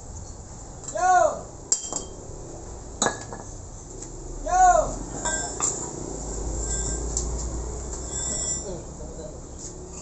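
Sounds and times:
metal tools clinking: 5.2s - 5.9s, 6.6s - 7.2s, 8.0s - 8.8s.

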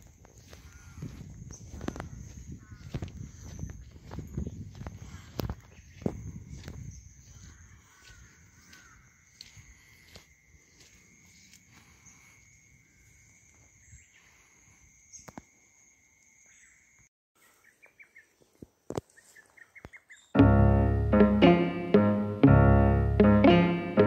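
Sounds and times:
piano music: 20.4s - 24.0s.

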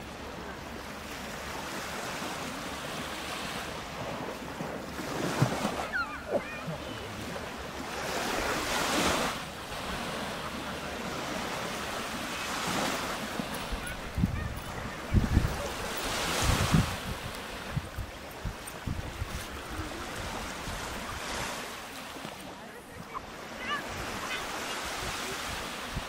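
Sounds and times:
small waves washing onto sand: 0.0s - 26.0s
wind on microphone: 12.6s - 21.6s.

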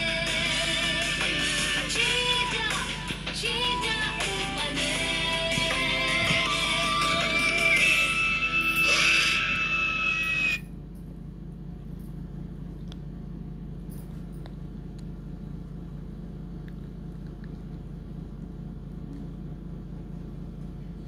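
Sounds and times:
children's song from phone speaker: 0.0s - 10.6s
steady low hum: 0.0s - 21.0s.

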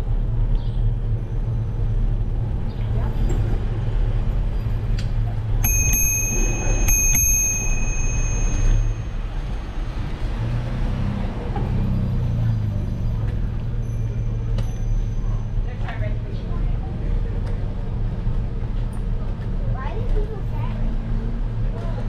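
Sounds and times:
bicycle bell ringing: 5.6s - 9.9s, 13.8s - 15.6s.

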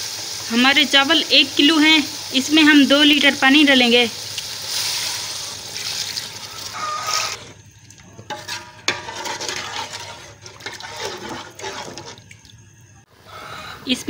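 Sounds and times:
water pouring into metal pot: 0.0s - 8.0s
ladle scraping and knocking pot: 8.2s - 12.3s.

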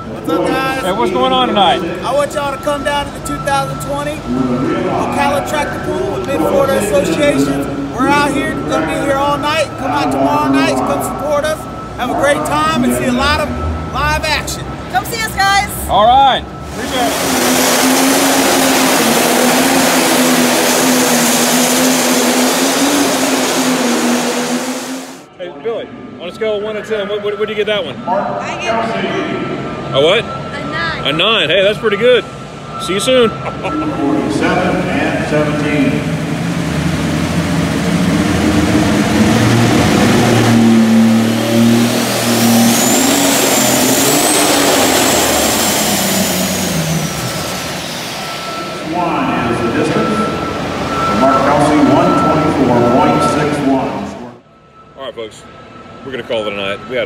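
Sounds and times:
high whine: 0.0s - 57.0s
tractor engine under heavy load: 16.5s - 25.3s, 36.0s - 48.9s.

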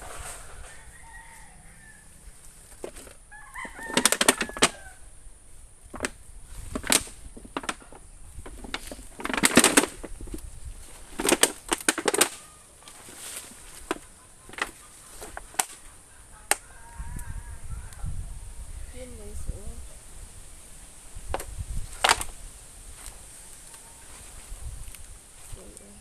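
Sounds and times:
rooster crowing: 0.0s - 2.4s, 3.2s - 5.2s, 12.3s - 13.4s, 15.8s - 19.0s, 23.3s - 24.5s
rustling: 0.0s - 16.7s, 19.0s - 26.0s.

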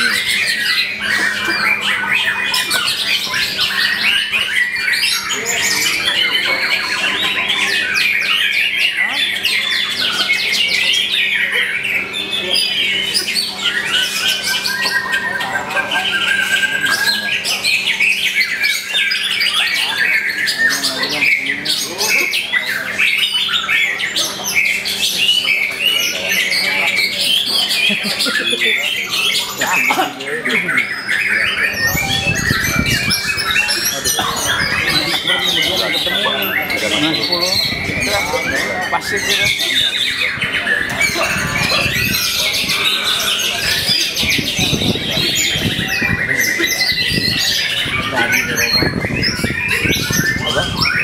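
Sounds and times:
other birds singing: 0.0s - 51.0s
songbird whistling and trilling: 30.6s - 51.0s.

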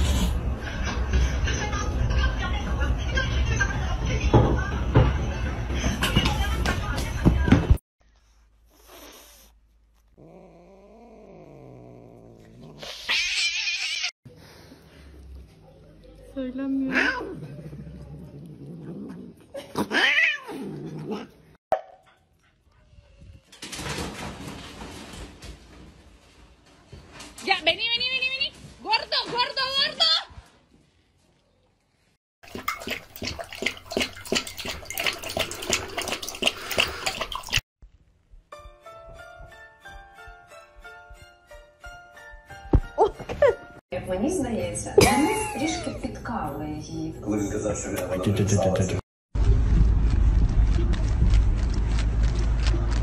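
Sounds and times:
cat hissing: 8.7s - 9.6s
cat growling yowl: 10.1s - 14.1s, 16.9s - 21.4s
dog lapping liquid: 32.4s - 37.6s.

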